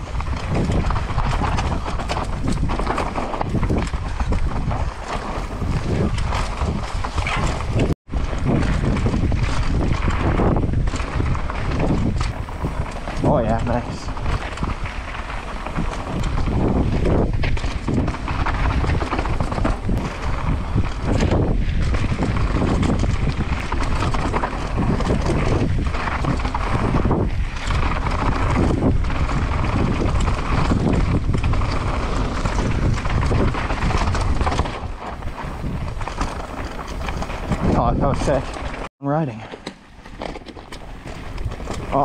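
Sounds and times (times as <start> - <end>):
wind buffeting microphone: 0.0 - 40.0, 40.6 - 42.0
mountain bike rattling: 0.0 - 42.0.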